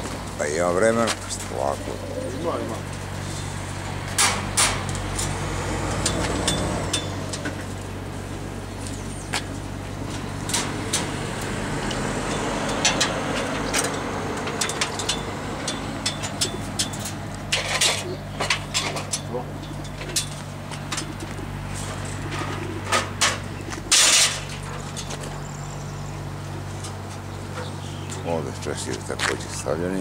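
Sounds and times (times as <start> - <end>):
lorry engine idling: 0.0 - 30.0
road traffic passing: 0.0 - 30.0
sharp clicks and knocks: 4.1 - 7.8, 10.1 - 21.4.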